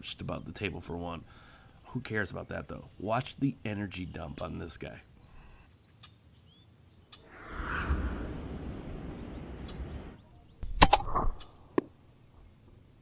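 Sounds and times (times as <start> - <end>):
rushing noise: 7.2 - 10.2
air rifle shot cracks: 10.7 - 11.4.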